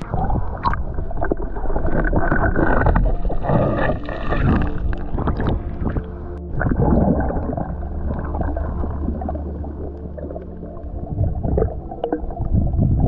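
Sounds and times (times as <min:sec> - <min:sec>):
low underwater rumble: 0:00.0 - 0:13.0
water rushing and bubbles: 0:00.0 - 0:13.0.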